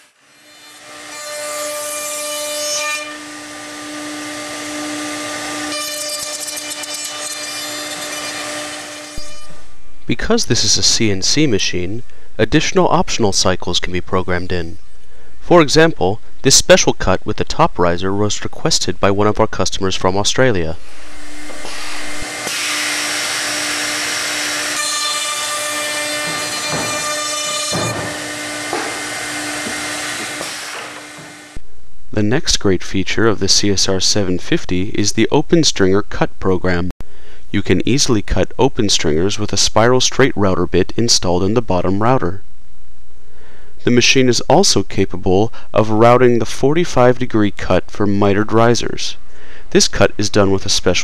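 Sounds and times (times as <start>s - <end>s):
router bit cutting wood: 0.0s - 9.6s, 21.1s - 31.6s
router spindle whining: 3.0s - 9.7s, 21.2s - 31.6s.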